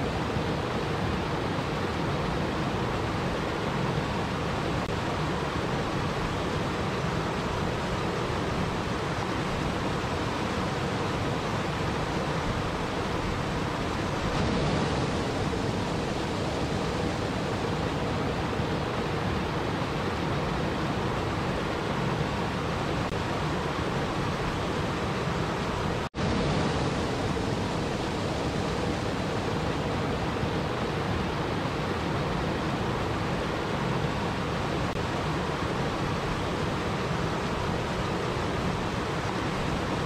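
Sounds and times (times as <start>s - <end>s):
waterfall rushing over rocks: 0.0s - 40.0s.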